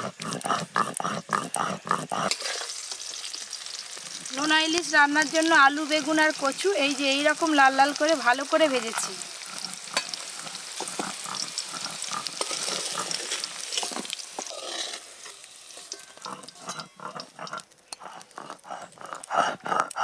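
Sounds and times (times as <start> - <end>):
oil sizzling in a wok: 0.0 - 18.5
metal spatula scraping: 2.2 - 3.2, 9.6 - 18.3
spatula clinking on plate: 13.7 - 18.0.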